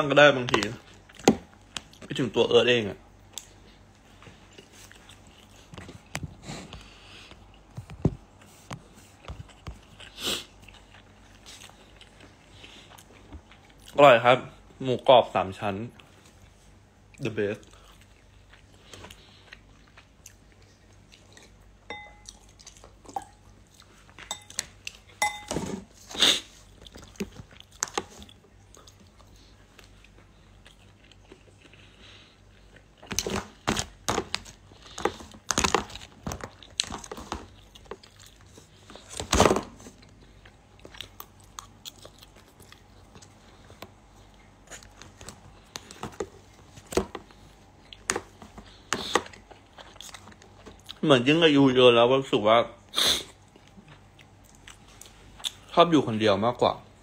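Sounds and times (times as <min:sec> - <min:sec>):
crunchy chewing: 0:39.9 - 0:46.2, 0:46.8 - 0:51.0.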